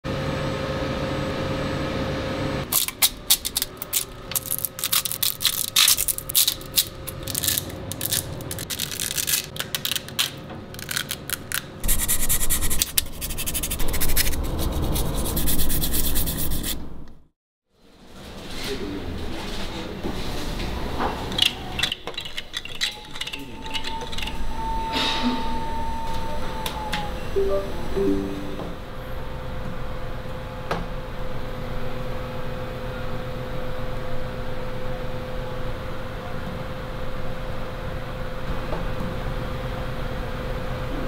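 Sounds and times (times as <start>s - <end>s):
rubbing scraping noise: 11.8s - 16.8s.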